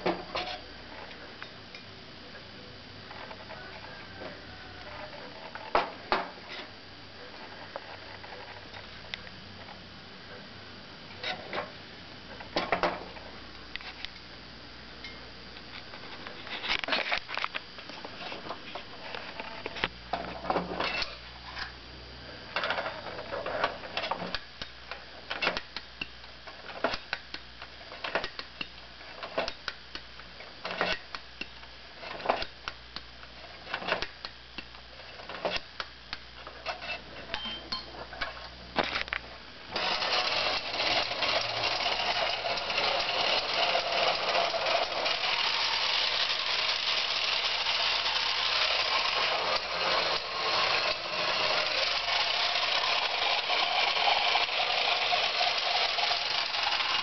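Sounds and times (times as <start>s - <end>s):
clockwork motor whirring rattle: 39.7s - 57.0s
clockwork winding clicks: 39.7s - 57.0s.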